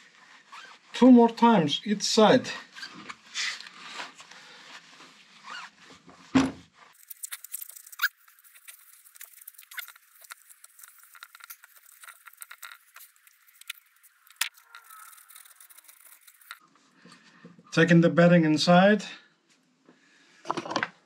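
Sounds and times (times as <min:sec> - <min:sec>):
cloth rubbing and squeaking on metal: 0:00.2 - 0:01.0, 0:02.7 - 0:04.0, 0:04.8 - 0:06.1, 0:06.9 - 0:16.6.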